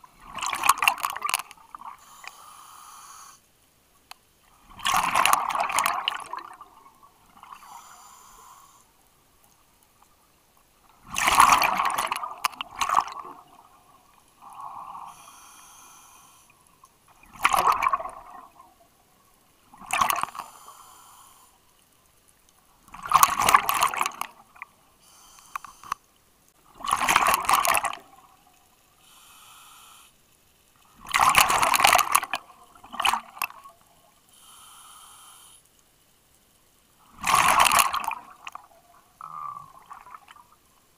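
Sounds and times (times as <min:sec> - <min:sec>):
regulator inhalation hiss: 0:02.0 - 0:03.4, 0:07.6 - 0:08.9, 0:15.0 - 0:16.6, 0:20.3 - 0:21.6, 0:25.0 - 0:26.0, 0:29.0 - 0:30.2, 0:34.3 - 0:35.7.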